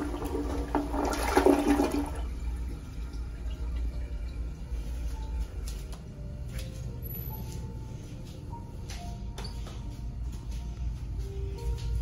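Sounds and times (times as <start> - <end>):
water running as bowl refills: 0.0 - 5.0
toilet flushing: 0.0 - 5.4.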